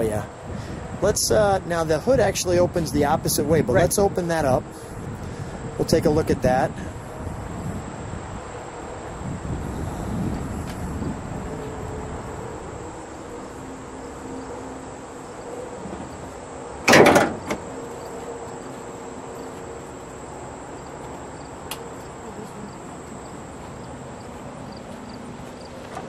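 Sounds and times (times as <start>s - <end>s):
insect buzz: 6.8s - 26.0s
car hood metallic clunk: 16.8s - 17.7s.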